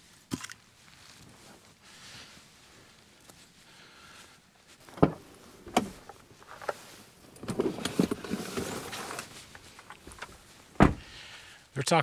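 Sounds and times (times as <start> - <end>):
rustling and knocking of gear: 4.7 - 11.1
car door clunks: 4.9 - 6.0, 10.8 - 11.1.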